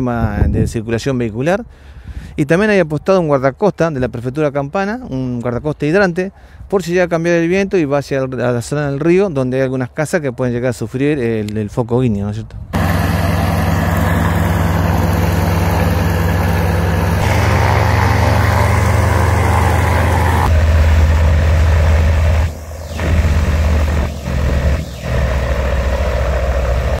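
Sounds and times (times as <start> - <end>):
propeller engine droning: 12.8 - 27.0.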